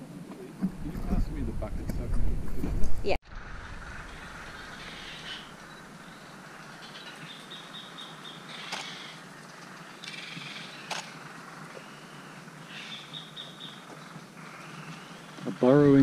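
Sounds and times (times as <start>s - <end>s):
small bird chirping: 3.9s - 15.5s.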